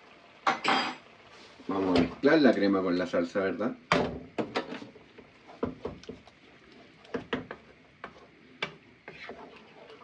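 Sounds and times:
wooden spoon knocking on frying pan: 3.9 - 4.8, 5.6 - 6.2, 7.1 - 8.8.

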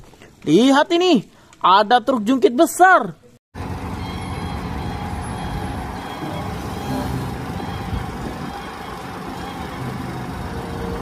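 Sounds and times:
hydraulic hoist raising: 3.6 - 11.0
truck diesel engine running: 3.6 - 11.0.

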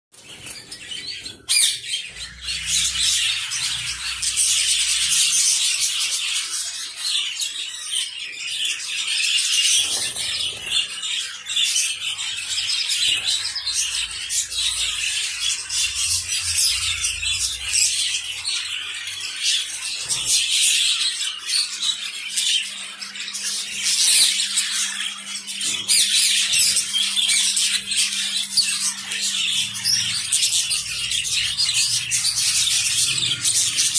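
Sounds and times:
finches chirping and chattering: 0.2 - 33.9.

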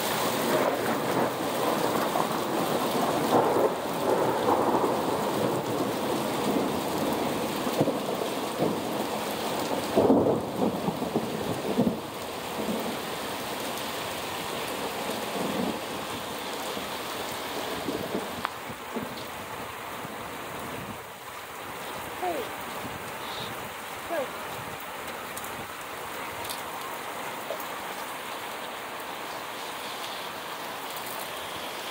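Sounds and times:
heavy rain pouring: 0.0 - 31.9
thunder rumbling: 0.1 - 13.0, 14.7 - 19.2.

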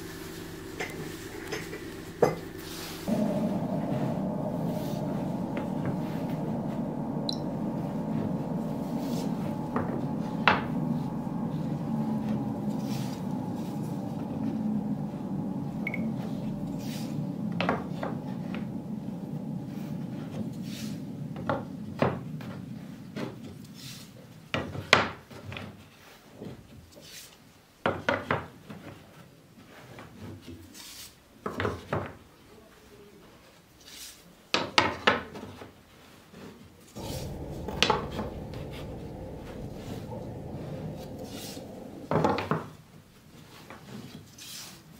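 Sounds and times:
low steady hum: 0.0 - 24.5, 36.9 - 43.3.

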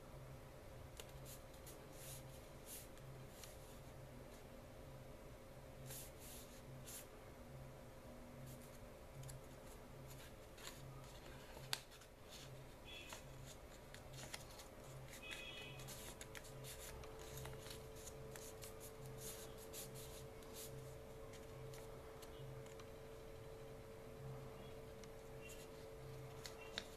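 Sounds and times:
paper rustling and crackling: 8.5 - 22.9, 25.0 - 26.9.

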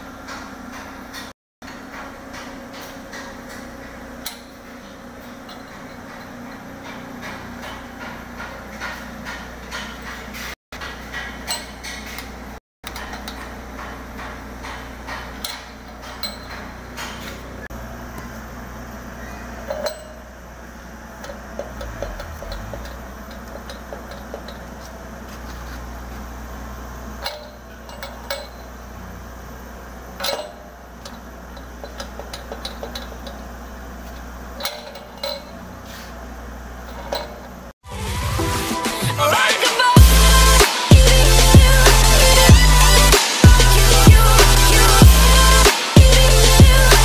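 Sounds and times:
steady low hum: 1.7 - 38.6, 40.0 - 47.0
metal clinks and knocks: 12.9 - 17.4, 21.2 - 24.9, 34.2 - 35.7.

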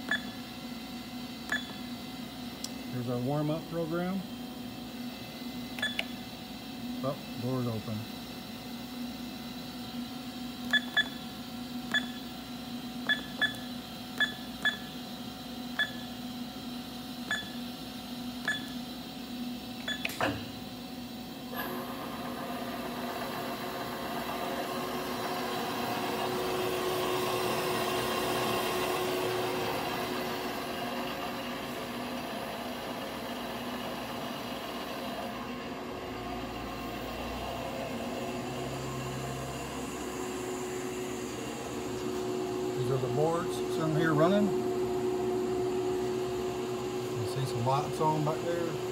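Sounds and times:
machine spindle humming with whine: 0.0 - 48.9
keypad beeping: 1.5 - 1.8, 5.8 - 6.1, 10.7 - 11.2, 11.9 - 12.2, 13.1 - 13.6, 14.2 - 14.9, 18.5 - 18.8.

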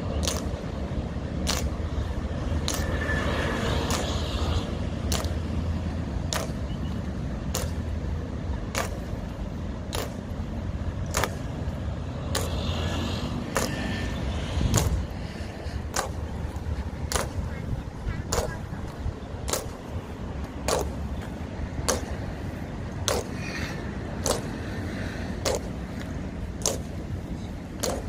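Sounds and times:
steady low rumble: 0.0 - 28.0
boot heels clicking in march: 0.1 - 0.8, 1.4 - 3.0, 3.8 - 4.2, 5.0 - 5.5, 6.2 - 8.0, 8.6 - 11.6, 12.2 - 12.6, 13.5 - 14.0, 14.6 - 23.4, 24.1 - 24.7, 25.3 - 28.0.

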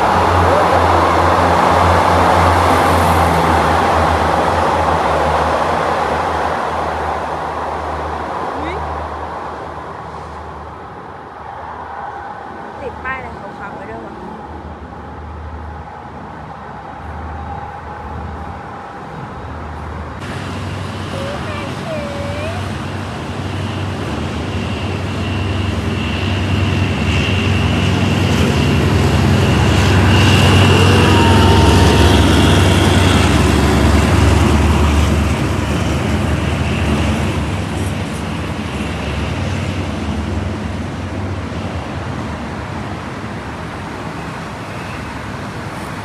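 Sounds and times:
train wheel noise: 13.1 - 46.0
locomotive engine rumble: 19.4 - 42.9.

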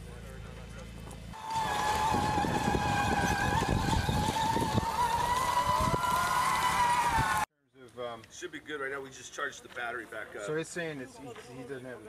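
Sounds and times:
electric drive whine: 1.0 - 7.5.

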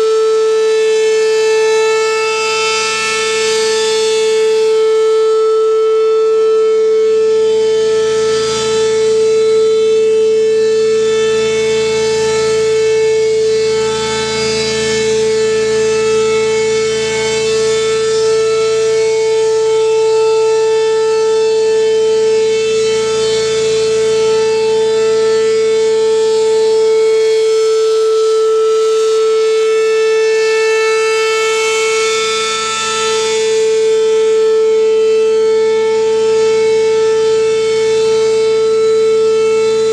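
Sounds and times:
mechanical siren wailing: 0.0 - 39.9.

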